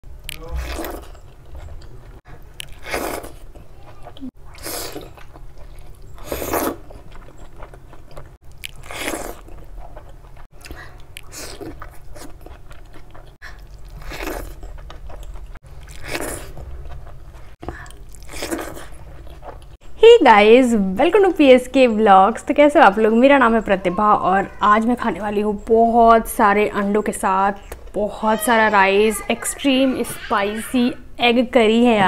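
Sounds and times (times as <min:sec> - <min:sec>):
wet chewing and biting: 0:00.2 - 0:19.8.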